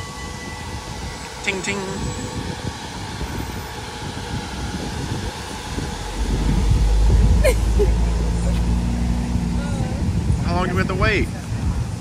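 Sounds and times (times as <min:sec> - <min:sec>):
heavy low rumble: 0:00.7 - 0:12.0
vehicle rumbling past: 0:02.4 - 0:11.8.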